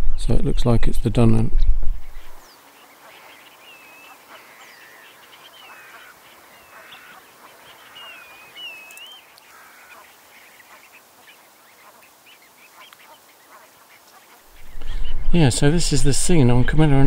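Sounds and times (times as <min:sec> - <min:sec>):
birds chattering: 0:00.0 - 0:17.0
wavering bird whistles: 0:07.9 - 0:09.2.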